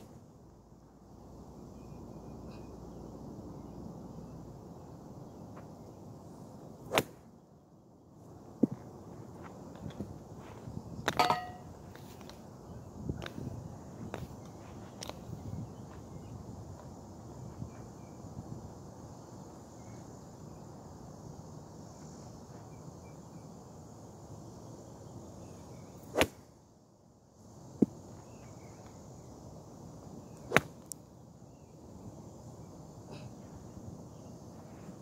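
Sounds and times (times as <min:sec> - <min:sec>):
faint high insect hum: 0:00.0 - 0:35.0
outdoor background noise: 0:00.0 - 0:35.0
golf club striking ball: 0:11.1 - 0:11.7.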